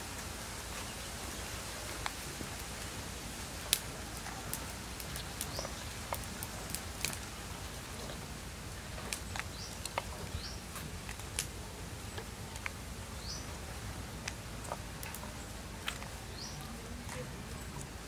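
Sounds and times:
steady outdoor hiss: 0.0 - 18.0
bird chirping: 5.2 - 6.0, 9.2 - 10.8, 13.0 - 13.6, 16.2 - 16.8.

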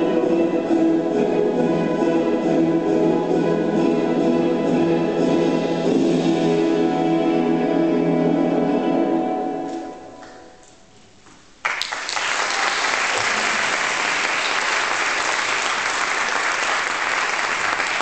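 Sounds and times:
orchestral ballet music chord: 0.0 - 10.6
audience applause: 11.6 - 18.0.

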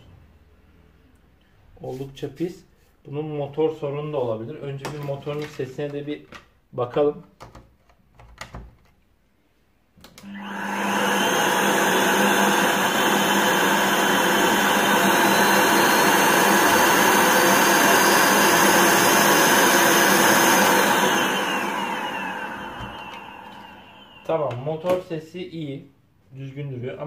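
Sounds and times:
vacuum cleaner motor running: 10.2 - 25.0.

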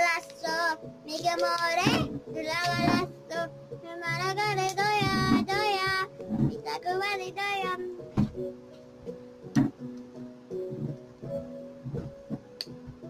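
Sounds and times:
high singing voice: 0.0 - 8.1
instrumental accompaniment: 0.9 - 13.0.

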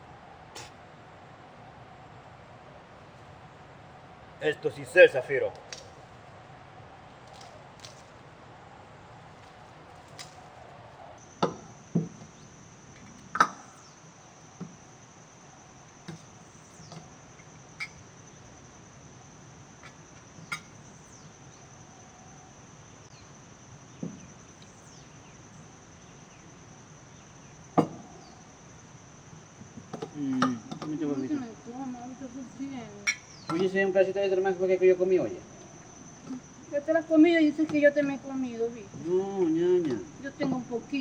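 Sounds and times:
insects droning: 0.0 - 41.0.

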